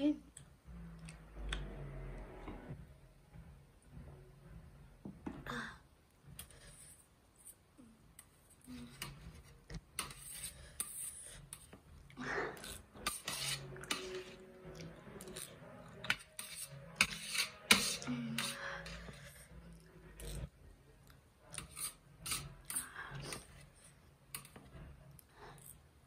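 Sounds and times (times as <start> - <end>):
metal chopsticks scraping a steel tray: 10.0 - 11.7, 12.7 - 14.4, 15.3 - 19.2, 21.5 - 23.5.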